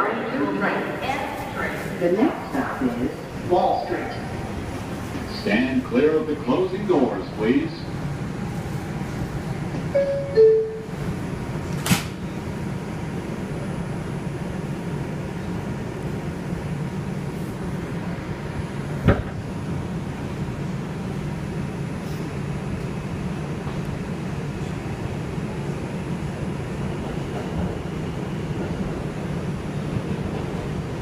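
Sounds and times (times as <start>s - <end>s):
two-note door chime: 10.0s - 10.9s
train doors knocking shut: 19.0s - 19.4s.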